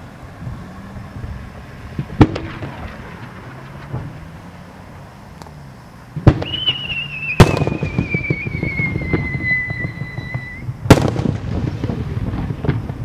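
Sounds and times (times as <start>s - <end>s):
echoing rumble: 0.0s - 13.0s
firework booms: 1.9s - 4.4s, 6.1s - 13.0s
firework whistle sliding down: 6.3s - 10.7s.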